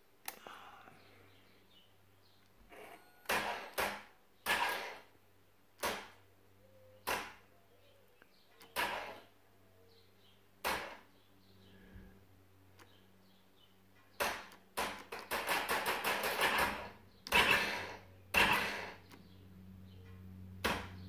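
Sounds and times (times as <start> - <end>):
vehicle starter engaging: 16.5 - 19.3.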